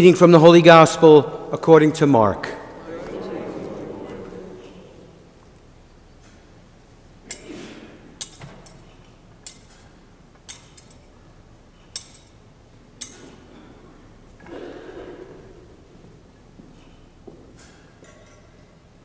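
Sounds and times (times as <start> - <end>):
censer chains clinking: 8.2 - 11.2, 11.8 - 13.7, 17.6 - 19.0.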